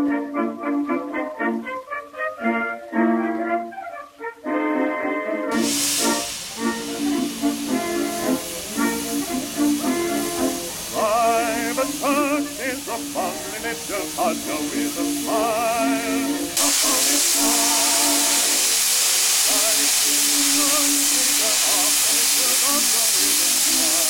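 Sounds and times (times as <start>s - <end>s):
steam locomotive hissing: 5.5s - 24.0s.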